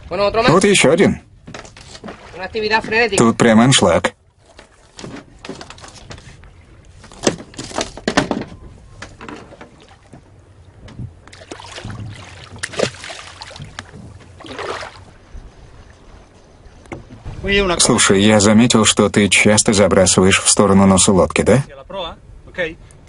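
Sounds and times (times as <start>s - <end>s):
water sloshing against boat hull: 0.0s - 19.4s
sharp knocks on boat: 1.4s - 3.3s, 4.5s - 6.3s, 7.0s - 14.6s, 16.8s - 17.4s.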